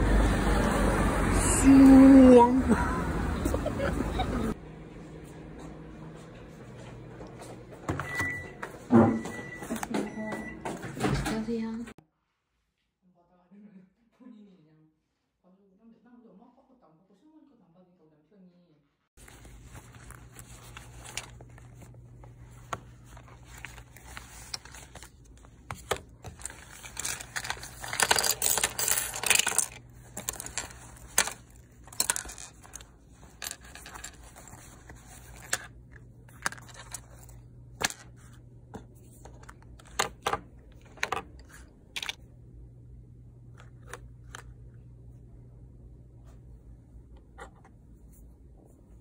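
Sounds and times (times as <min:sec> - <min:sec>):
low steady hum: 0:19.2 - 0:49.0.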